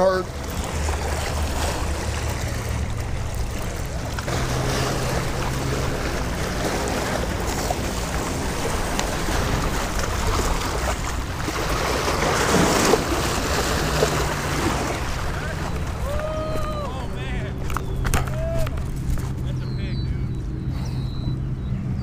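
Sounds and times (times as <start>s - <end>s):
waves splashing against rocks: 0.0s - 19.4s
low steady rumble: 0.0s - 22.0s
wind buffeting microphone: 0.0s - 22.0s.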